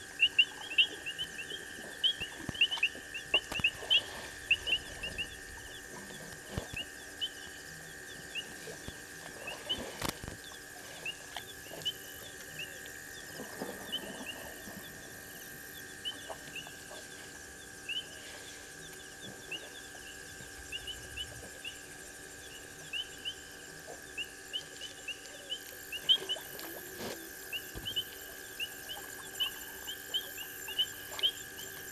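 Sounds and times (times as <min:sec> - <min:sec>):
night creatures chirping: 0:24.1 - 0:31.9.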